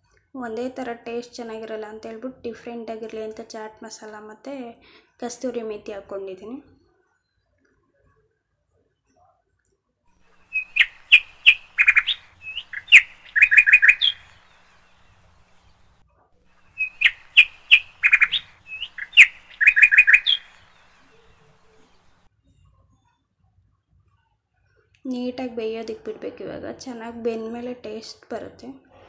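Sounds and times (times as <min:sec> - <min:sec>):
bird-like chirps and trills: 0:10.2 - 0:23.2.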